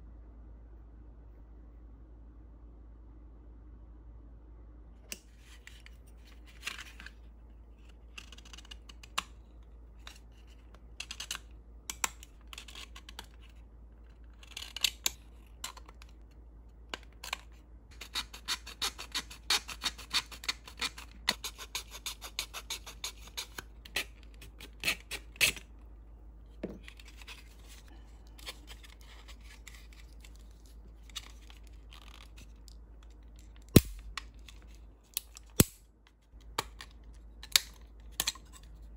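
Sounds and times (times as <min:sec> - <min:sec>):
blade scraping plastic: 0:10.0 - 0:16.2, 0:26.6 - 0:35.6.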